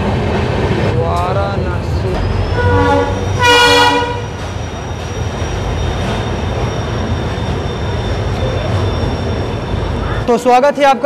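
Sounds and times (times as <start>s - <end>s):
train running gear rumble: 0.0s - 10.4s
train horn blast: 2.5s - 4.4s.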